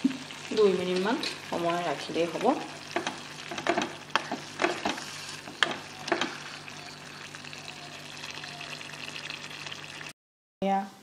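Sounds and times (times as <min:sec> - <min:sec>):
greens simmering with hiss: 0:00.0 - 0:10.1
wooden spatula knocking metal pot: 0:02.9 - 0:06.4.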